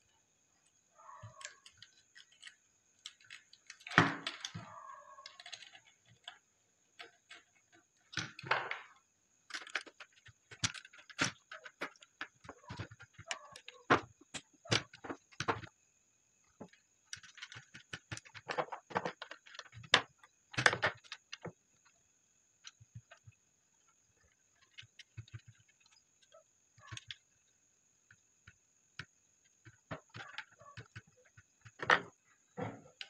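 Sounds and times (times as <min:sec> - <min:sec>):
screwdriver clicking and scraping on wires: 0:01.2 - 0:06.4.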